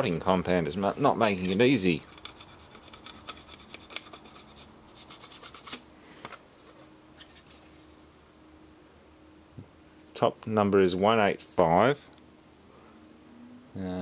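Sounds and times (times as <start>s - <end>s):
fingers scratching circuit board: 1.4s - 5.8s.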